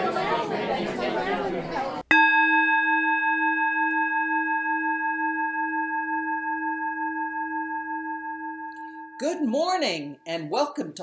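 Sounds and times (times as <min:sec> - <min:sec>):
metal chime ringing: 0:02.1 - 0:09.5.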